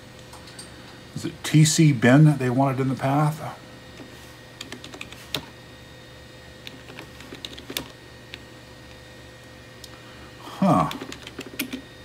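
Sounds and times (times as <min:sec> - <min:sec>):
computer keyboard typing: 0:04.6 - 0:05.4, 0:06.7 - 0:07.9, 0:10.8 - 0:11.8.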